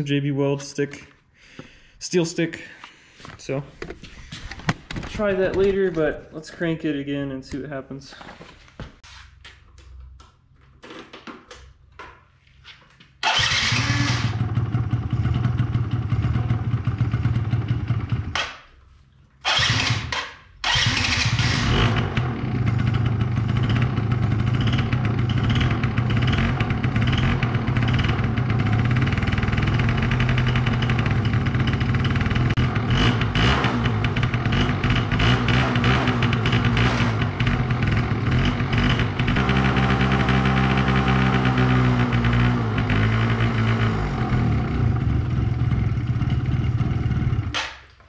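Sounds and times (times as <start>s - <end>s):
scooter engine starting and running: 13.2s - 18.7s, 19.4s - 48.0s.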